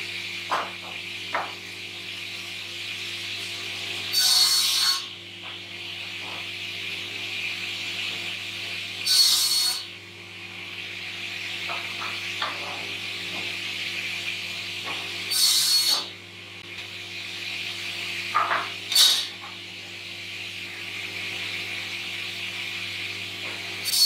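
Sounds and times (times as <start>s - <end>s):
saw blade cutting timber: 4.1s - 5.1s, 9.0s - 9.9s, 15.3s - 16.1s, 18.9s - 19.3s.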